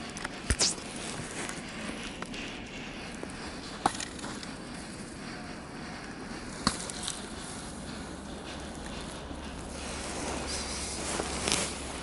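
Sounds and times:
sharp click: 0.4s - 0.8s
footsteps crunching through snow: 9.7s - 12.0s.

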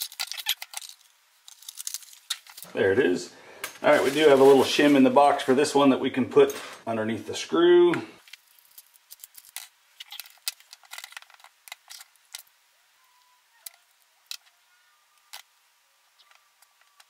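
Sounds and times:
small metal parts clicking: 0.0s - 2.7s, 8.2s - 12.5s.

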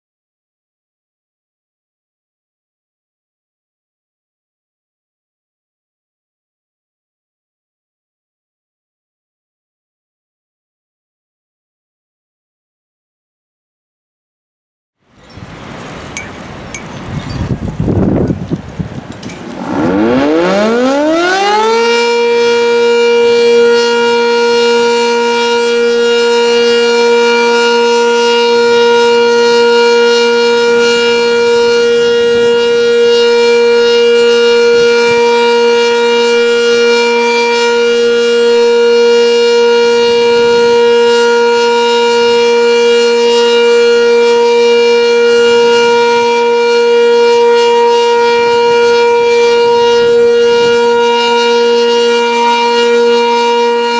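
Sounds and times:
warning siren steady tone: 19.4s - 53.9s.

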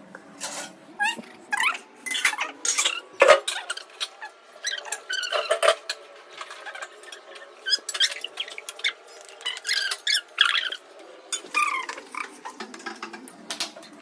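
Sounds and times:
high squeaky chirps: 7.0s - 12.5s.

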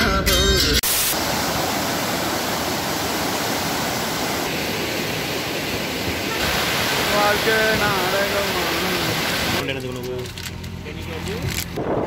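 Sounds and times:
river rushing over rapids: 0.9s - 9.6s.

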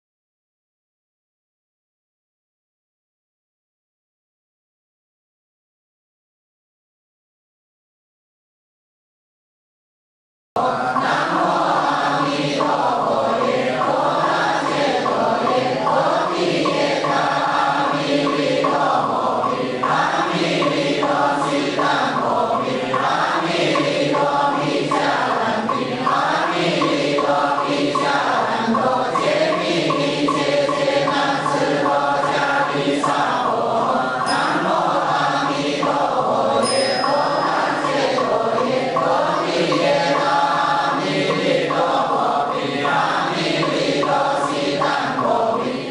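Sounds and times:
group of voices chanting: 10.6s - 45.9s.

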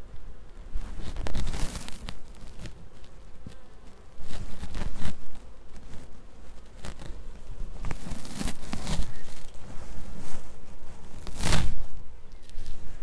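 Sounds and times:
honeybees buzzing: 0.0s - 13.0s
wire mesh rustling and clicking: 0.9s - 7.2s.

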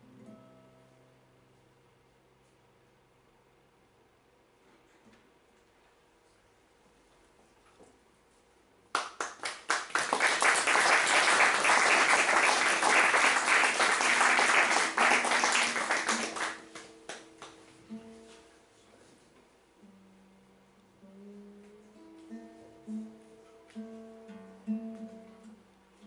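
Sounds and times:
classical guitar notes: 0.0s - 1.4s, 15.0s - 18.8s, 19.8s - 26.0s
audience applauding: 9.0s - 17.6s.

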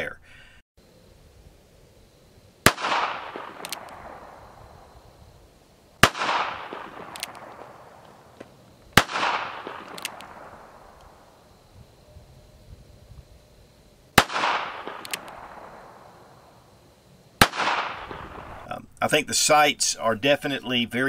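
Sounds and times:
gunshots with echo: 2.6s - 4.5s, 6.0s - 8.3s, 9.0s - 11.2s, 14.2s - 16.2s, 17.4s - 18.7s.

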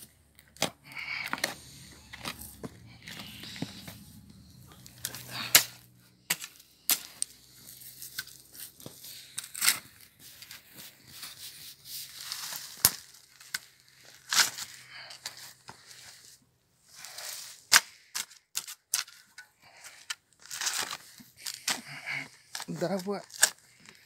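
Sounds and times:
spade crunching into soil: 0.5s - 10.6s.

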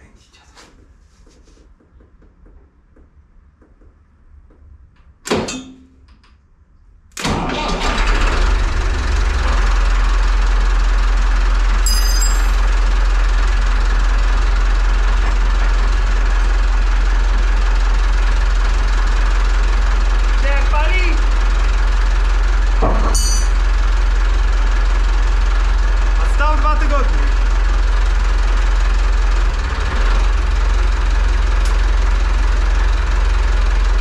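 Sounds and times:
diesel engine cranking and starting: 7.1s - 34.0s.

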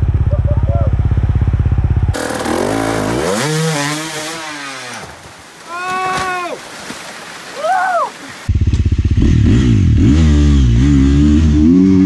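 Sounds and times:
dirt bike engine: 0.0s - 6.6s, 8.4s - 12.0s
rushing water: 4.1s - 8.5s.

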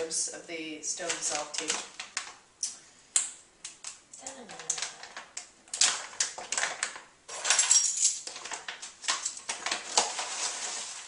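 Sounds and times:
bag of dry tea rustling: 9.0s - 11.0s.

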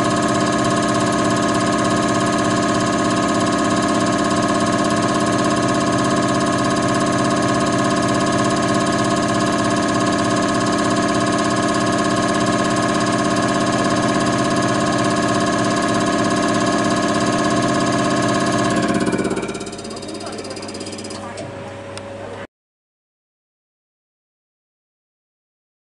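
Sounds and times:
loud machine hum: 0.0s - 22.5s.

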